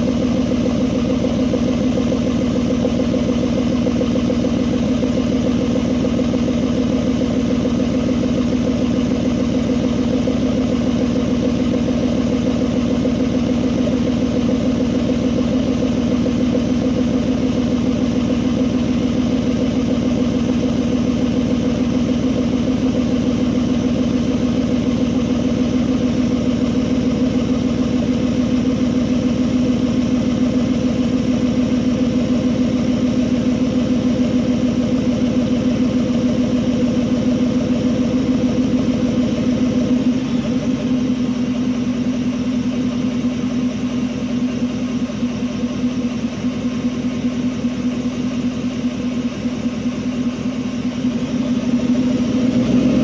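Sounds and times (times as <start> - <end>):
pickup truck engine idling: 0.0 - 53.0.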